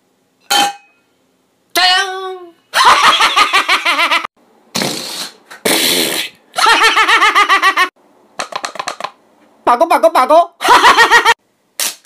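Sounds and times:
man laughing loudly: 0:02.8 - 0:04.3, 0:06.6 - 0:07.9, 0:10.6 - 0:11.4.

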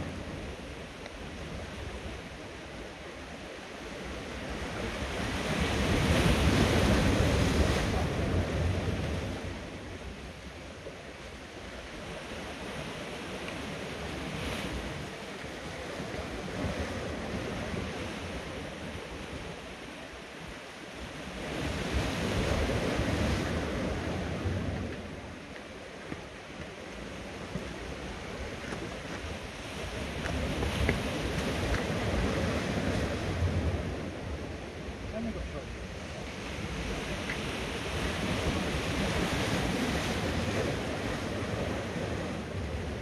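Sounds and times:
waves breaking against rocks: 0:00.0 - 0:43.0.

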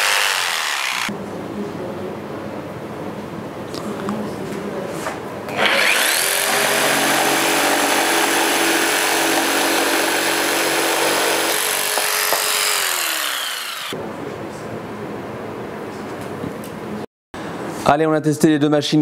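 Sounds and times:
jigsaw sawing wood: 0:00.0 - 0:01.1, 0:05.6 - 0:14.0.

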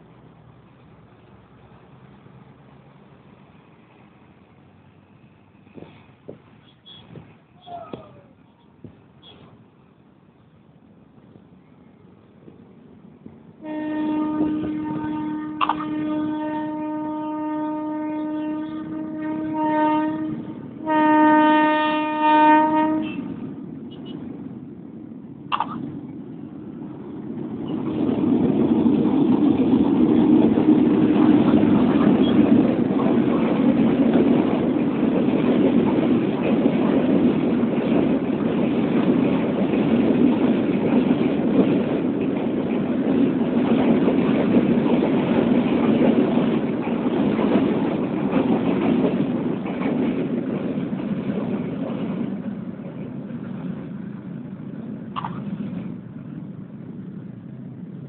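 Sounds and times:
train wheels rumbling on rail: 0:00.0 - 0:58.0.

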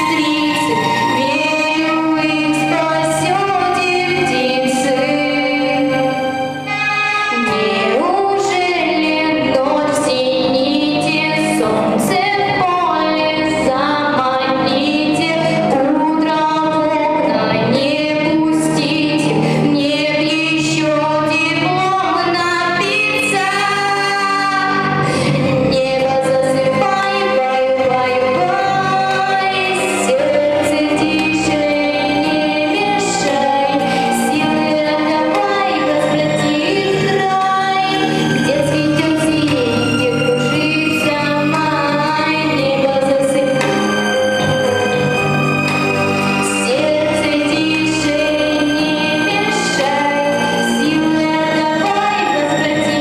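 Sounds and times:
woman singing into microphone: 0:00.0 - 0:44.8, 0:45.5 - 0:53.0
instrumental accompaniment: 0:00.0 - 0:53.0.

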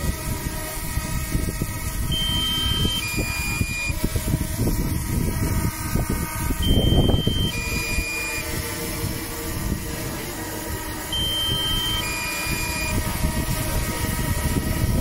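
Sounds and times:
drone propellers humming: 0:00.0 - 0:15.0
two-tone warning beep: 0:02.1 - 0:04.0, 0:06.6 - 0:08.6, 0:11.1 - 0:13.0.

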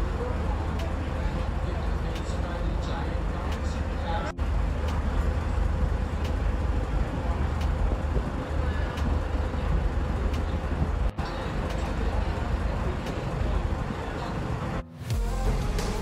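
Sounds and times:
boat engine rumble: 0:00.0 - 0:16.0.

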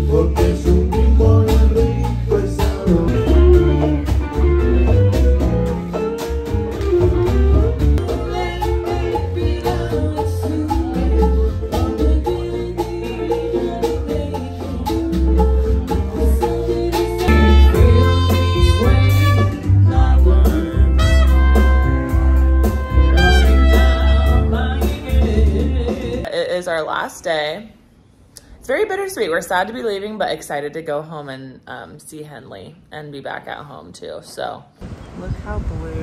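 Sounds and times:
music with strong bass beat: 0:14.4 - 0:26.2.

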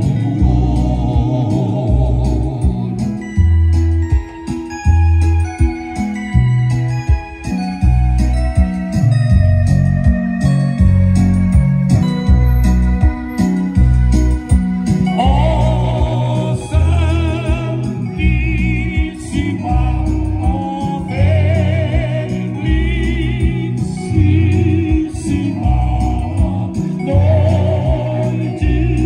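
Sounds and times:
men singing gospel: 0:00.0 - 0:03.7, 0:14.8 - 0:29.0
electronic keyboard chords: 0:00.0 - 0:29.0
heavy bass line: 0:00.0 - 0:29.0.

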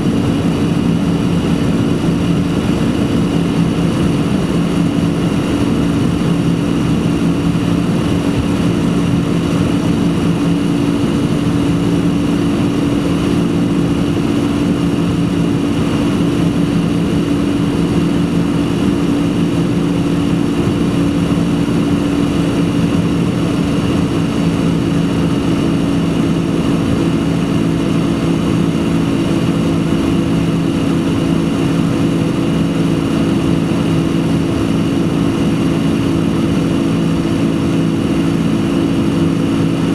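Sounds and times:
jet engine drone in cabin: 0:00.0 - 0:39.9.

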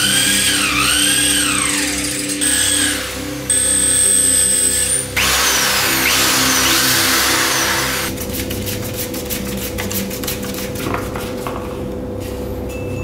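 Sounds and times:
power drill boring through wood: 0:00.0 - 0:08.1.

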